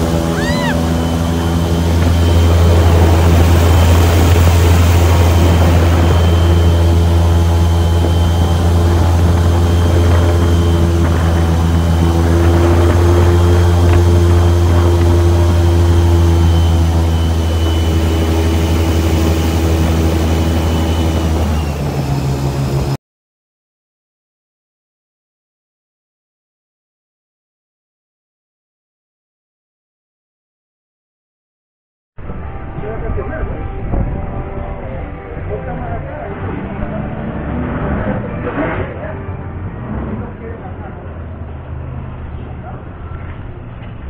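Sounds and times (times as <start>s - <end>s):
airboat engine and propeller drone: 0.0s - 23.0s, 32.2s - 44.0s.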